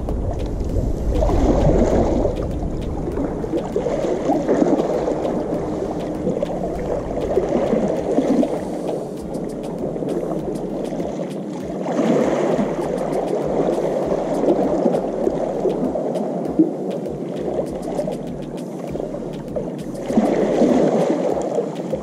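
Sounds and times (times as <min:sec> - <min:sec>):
low wind rumble on microphone: 0:00.0 - 0:16.1
small waves washing against rocks: 0:00.0 - 0:22.0.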